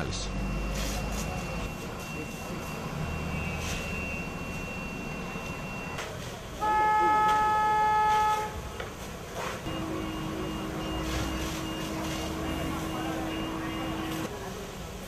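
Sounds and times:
background noise: 0.0s - 15.0s
horn blowing long note: 6.6s - 8.6s.

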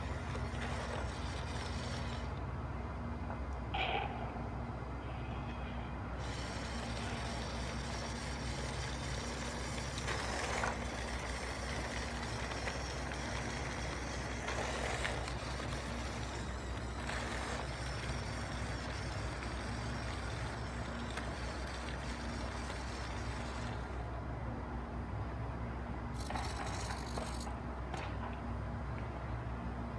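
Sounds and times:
model vehicle engine drone: 0.0s - 2.6s, 5.8s - 24.2s, 26.1s - 27.6s.

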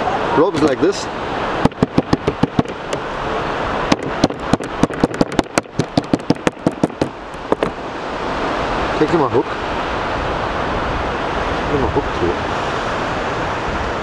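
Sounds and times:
surf hiss: 0.0s - 14.0s
mallet pounding on cutting board: 1.6s - 3.1s, 3.9s - 7.7s.

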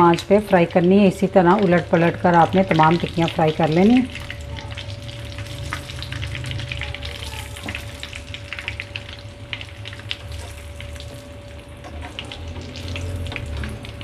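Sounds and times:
oil sizzling and crackling: 0.0s - 14.0s.

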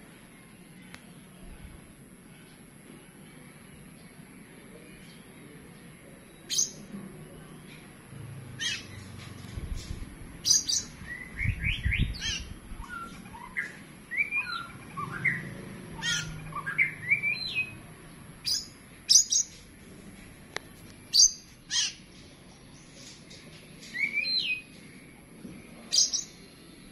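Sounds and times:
bird singing with whistled phrases: 6.2s - 6.9s, 10.4s - 17.8s, 18.4s - 19.6s, 21.1s - 22.0s, 23.8s - 24.8s, 25.9s - 26.5s.

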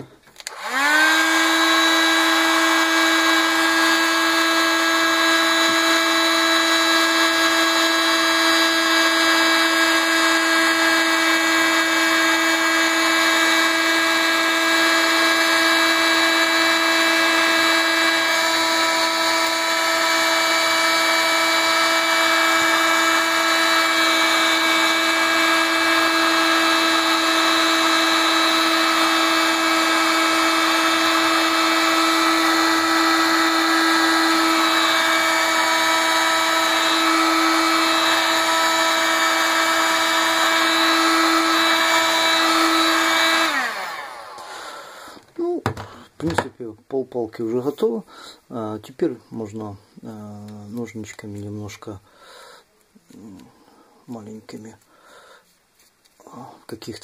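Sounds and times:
heat gun whining: 0.0s - 46.5s.

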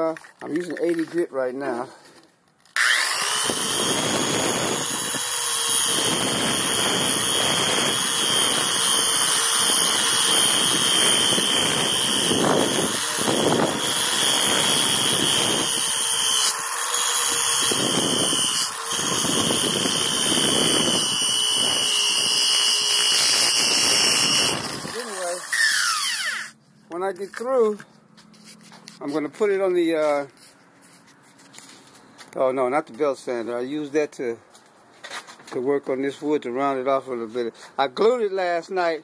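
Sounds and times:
power tool motor whine: 2.6s - 26.6s
sanding wheel grinding steel: 2.8s - 31.7s.

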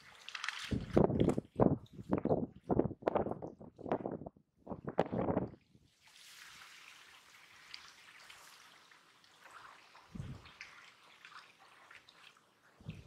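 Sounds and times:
wet trickling and dripping: 0.0s - 3.9s, 5.4s - 13.0s
small crackles: 0.0s - 4.1s, 7.2s - 13.0s.

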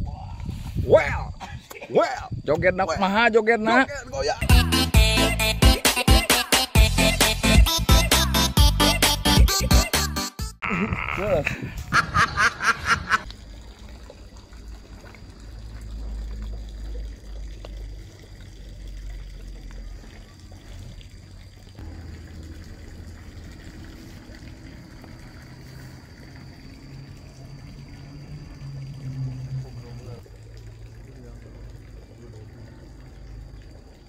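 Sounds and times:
water trickling: 11.9s - 34.0s.

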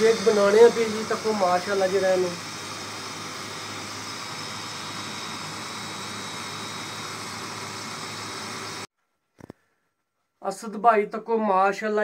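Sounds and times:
electric blender running: 0.0s - 8.9s.

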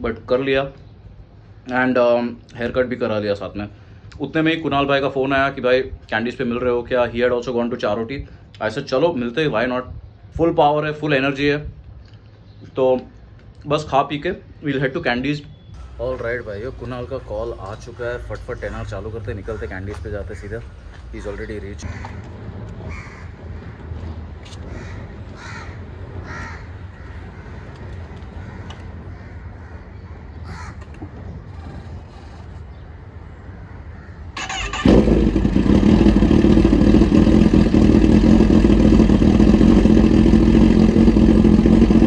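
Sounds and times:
motorcycle engine cranking: 34.4s - 42.0s
motorcycle engine idling: 34.4s - 42.0s.

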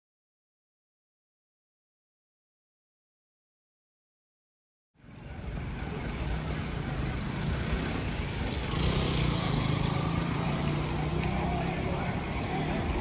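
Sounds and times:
low rumble of vehicle noise: 5.0s - 13.0s.

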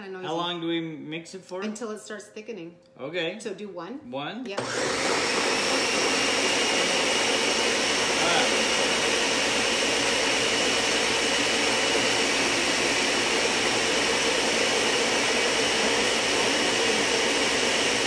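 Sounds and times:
blender whining: 4.5s - 18.0s.

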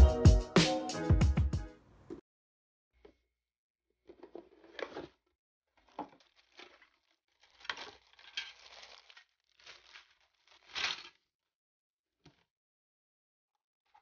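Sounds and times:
plastic bags crinkling: 5.8s - 11.1s.

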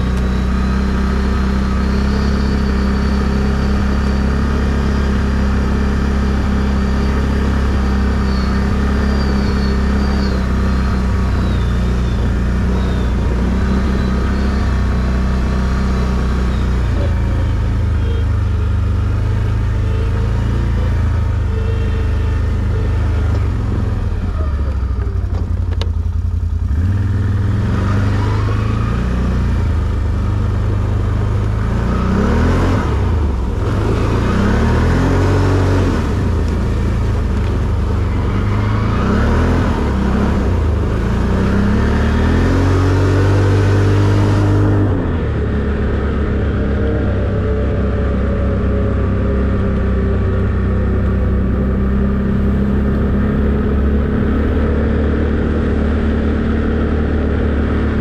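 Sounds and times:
atv engine revving: 0.0s - 58.0s.

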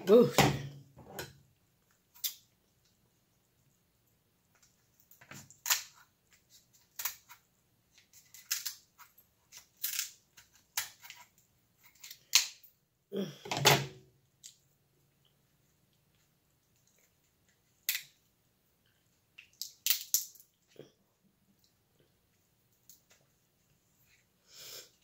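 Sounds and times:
shears cracking crab shell: 5.1s - 7.4s, 8.1s - 8.9s, 9.5s - 11.3s, 11.9s - 12.6s, 19.4s - 20.5s.

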